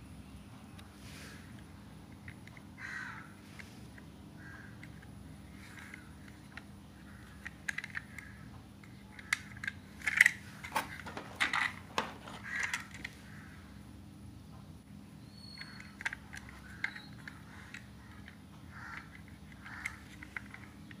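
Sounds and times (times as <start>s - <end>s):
plastic toy clicking and rattling: 2.1s - 2.7s, 4.7s - 13.2s, 15.6s - 21.0s.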